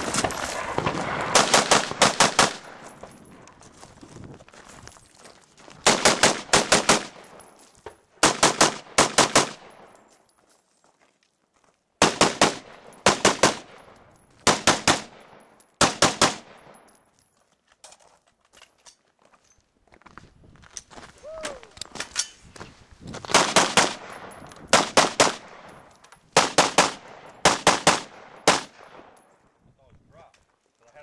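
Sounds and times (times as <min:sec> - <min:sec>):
rifle gunshots with echo: 0:00.1 - 0:02.8, 0:05.8 - 0:07.4, 0:08.2 - 0:09.9, 0:12.0 - 0:16.8, 0:23.3 - 0:25.8, 0:26.4 - 0:29.2.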